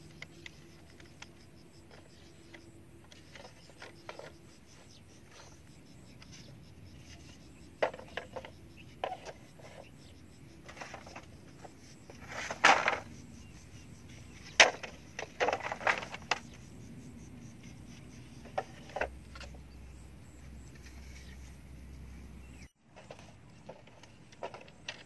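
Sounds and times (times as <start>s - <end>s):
bamboo poles knocking together: 7.8s - 9.8s, 10.6s - 13.1s, 14.5s - 16.4s.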